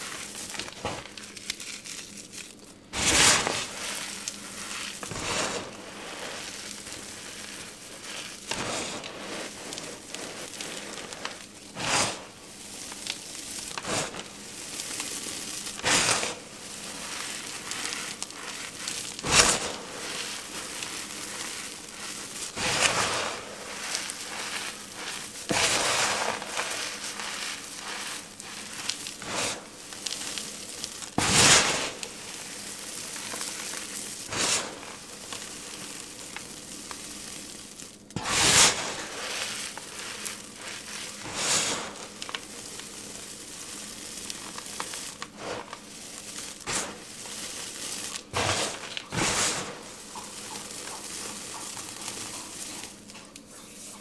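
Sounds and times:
crumbling powder hiss: 0.0s - 54.0s
powder clumps crunching: 0.0s - 54.0s.

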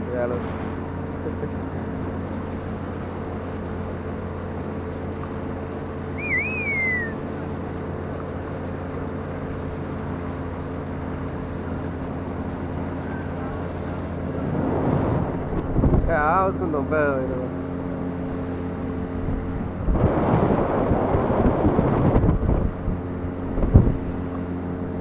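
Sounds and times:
outboard motor droning: 0.0s - 25.0s
wavering whistle: 6.1s - 7.3s.

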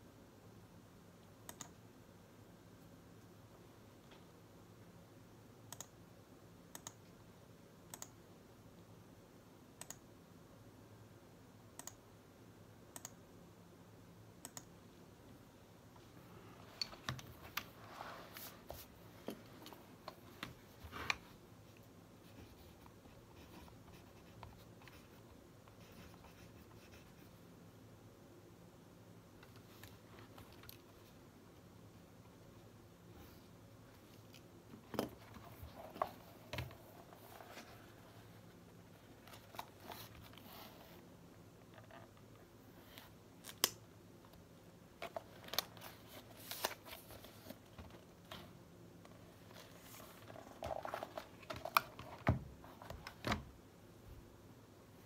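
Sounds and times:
computer mouse clicking: 1.4s - 1.8s, 5.7s - 6.0s, 6.7s - 7.0s, 7.9s - 8.2s, 9.8s - 10.0s, 11.8s - 12.0s, 12.9s - 13.2s, 14.4s - 14.8s.

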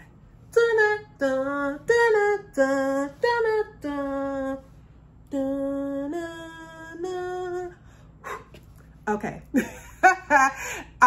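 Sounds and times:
woman singing a wordless tune: 0.0s - 8.5s.

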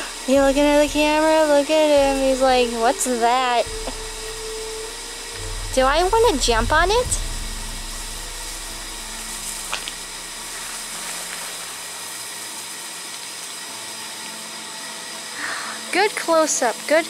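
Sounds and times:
faint hum: 0.0s - 12.7s
outdoor background hiss: 0.0s - 17.0s.

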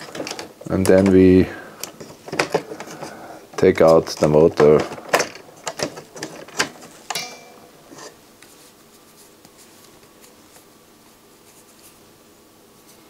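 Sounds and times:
sharp click with brief ring: 7.1s - 7.7s.

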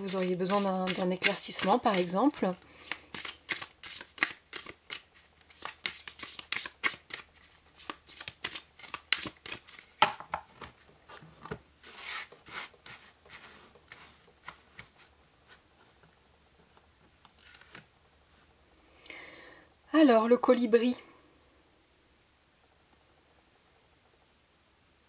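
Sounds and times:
cards being shuffled: 0.0s - 15.9s, 17.2s - 17.9s
cards sliding on a table: 11.1s - 15.6s.

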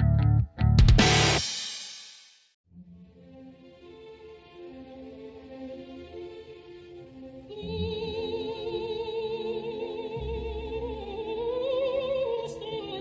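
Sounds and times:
operatic singing voice: 5.0s - 13.0s.

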